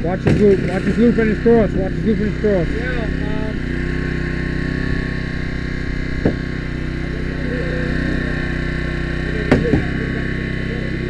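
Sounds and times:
hydraulic power unit running: 0:00.0 - 0:11.0
sharp knock: 0:09.5 - 0:10.0.

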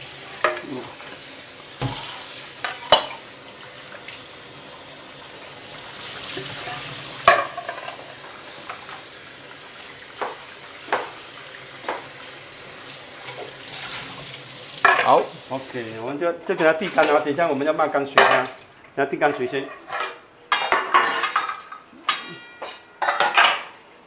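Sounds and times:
tap water running: 0:00.0 - 0:19.0.

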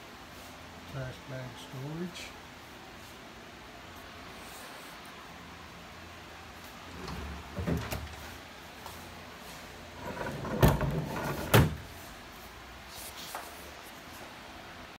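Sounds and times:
sliding door rumbling on track: 0:06.9 - 0:08.2, 0:10.0 - 0:11.9.

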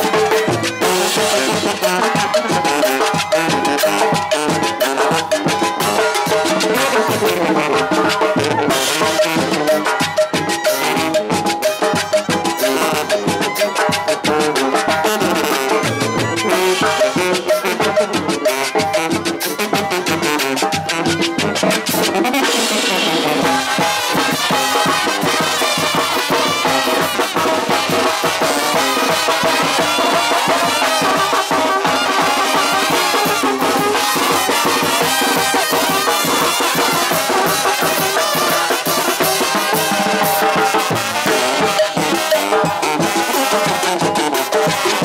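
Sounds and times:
brass band playing: 0:00.0 - 0:45.0.

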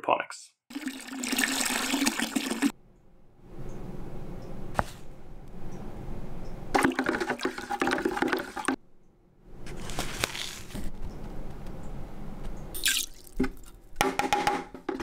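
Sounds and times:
water sloshing in a pail: 0:00.7 - 0:02.7, 0:06.7 - 0:08.8.

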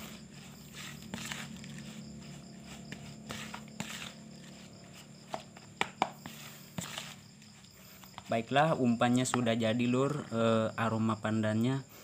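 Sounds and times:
spatula scraping plastic bowl: 0:00.0 - 0:08.5.

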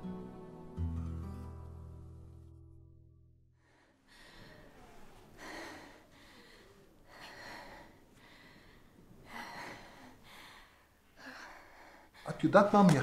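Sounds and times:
woman breathing hard: 0:03.6 - 0:12.3.

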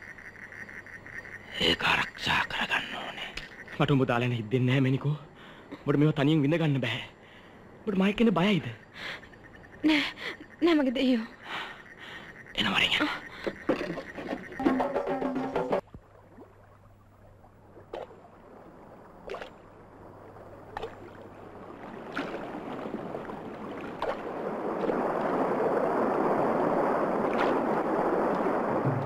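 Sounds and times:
music: 0:14.6 - 0:15.8
river water roaring: 0:14.7 - 0:29.0.

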